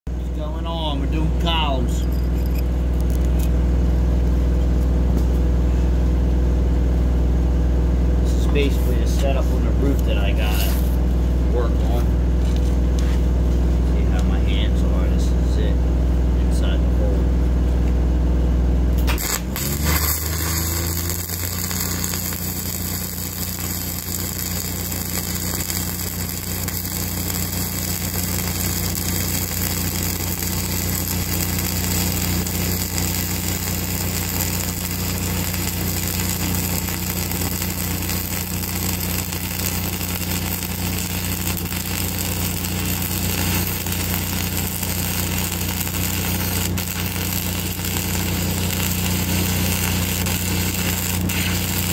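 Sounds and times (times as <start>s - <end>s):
engine humming: 0.1s - 51.9s
welding arc hissing: 10.0s - 11.0s, 18.9s - 51.9s.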